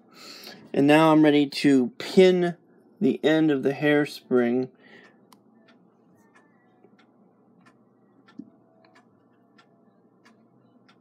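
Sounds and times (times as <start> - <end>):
mechanical clock ticking: 5.0 - 11.0.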